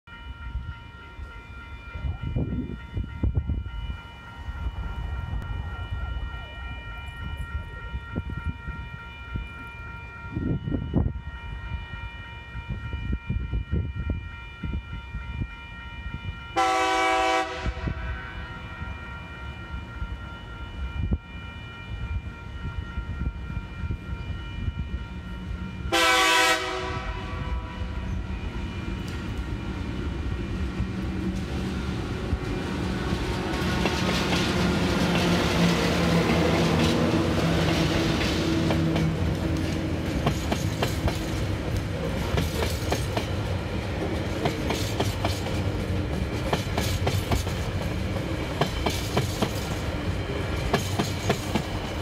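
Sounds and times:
level crossing bells ringing: 0.1s - 10.4s
train horn blasts: 0.1s - 43.3s
diesel locomotive rumbling past: 0.1s - 52.0s.

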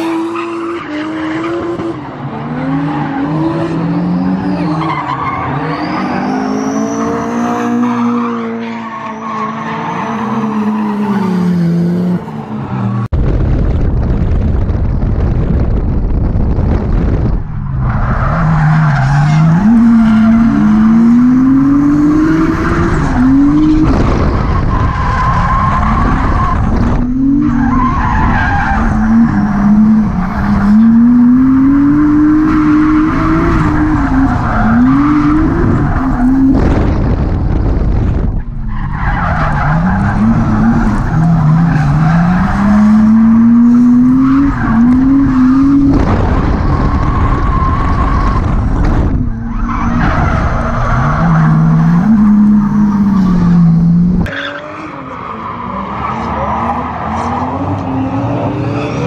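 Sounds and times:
wind noise on microphone: 13.1s - 18.6s, 22.5s - 27.6s, 33.2s - 38.7s, 43.2s - 52.6s
car engine revving: 15.4s - 59.0s.

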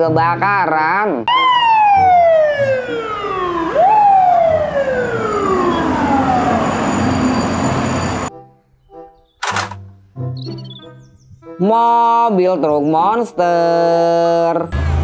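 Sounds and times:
fire truck siren wailing: 1.3s - 8.3s.

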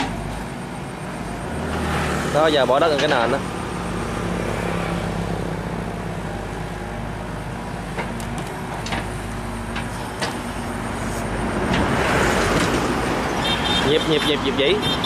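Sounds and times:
excavator diesel engine running: 0.0s - 15.0s.

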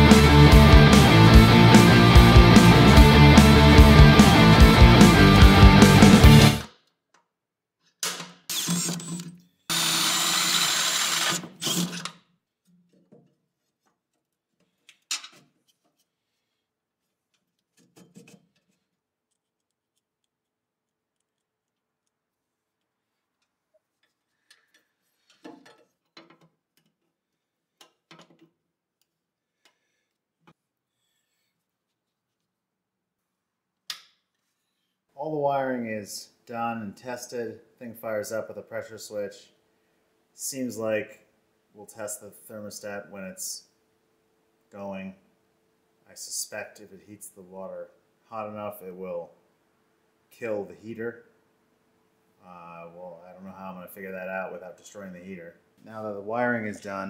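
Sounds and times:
power drill running: 8.5s - 12.1s
faint clicks of parts handled: 12.9s - 16.2s, 17.3s - 27.1s, 27.8s - 32.5s.

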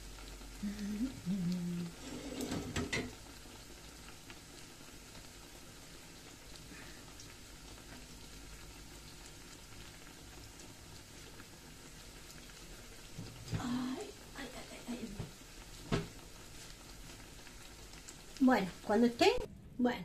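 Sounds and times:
dough deep-frying in oil: 0.0s - 20.0s
person humming: 0.6s - 2.4s.

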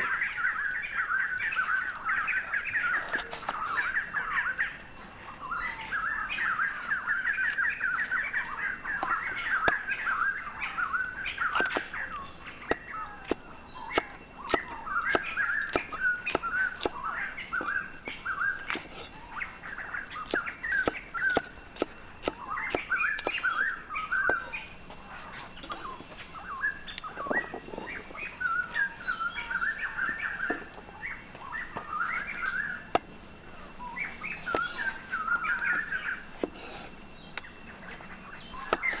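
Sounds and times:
birds chirping and singing: 0.0s - 39.0s
cleaver chopping on wooden block: 20.3s - 23.4s, 38.6s - 39.0s.

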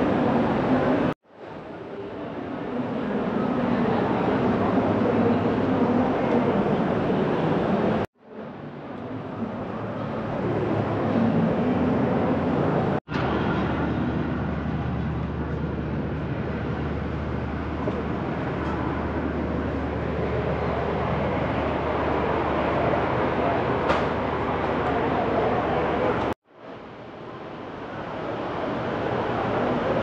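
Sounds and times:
noisy rumble: 2.5s - 30.0s.

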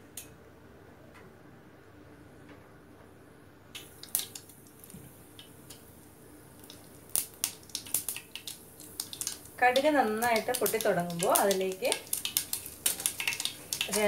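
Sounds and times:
seeds sizzling in hot oil: 3.8s - 14.0s
mustard seeds popping: 6.6s - 14.0s.

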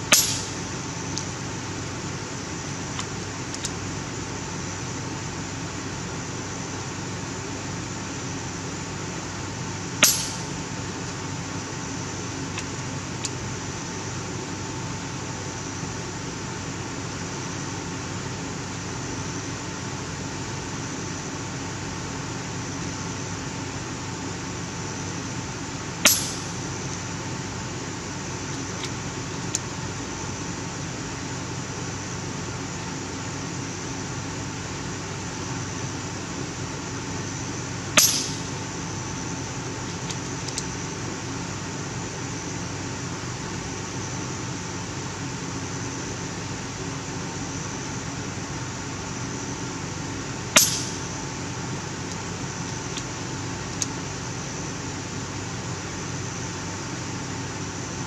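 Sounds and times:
steady background noise: 0.0s - 58.0s
air rifle shot: 0.1s - 0.6s, 10.0s - 10.5s, 26.1s - 26.5s, 38.0s - 38.6s, 50.6s - 51.1s.

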